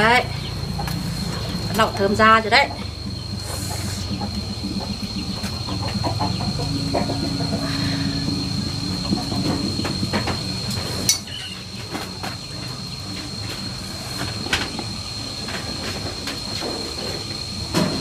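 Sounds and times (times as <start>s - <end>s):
steady high tone: 0.0s - 15.6s.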